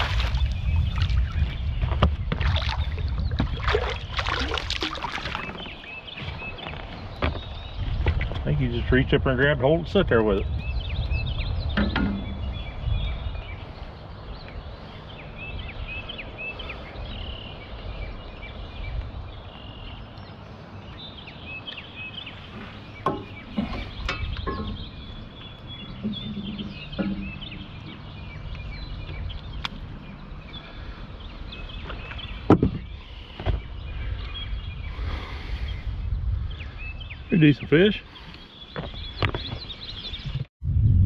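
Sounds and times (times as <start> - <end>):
small birds chirping: 0.0 - 40.5
wind rumble on microphone: 0.0 - 41.0
handling knocks in boat: 23.0 - 25.0, 31.9 - 33.7.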